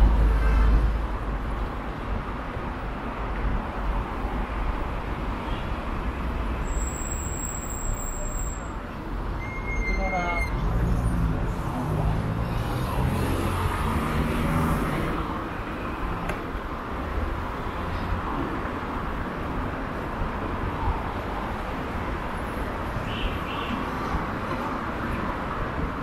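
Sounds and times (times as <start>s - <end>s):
road noise rushing: 0.0s - 26.0s.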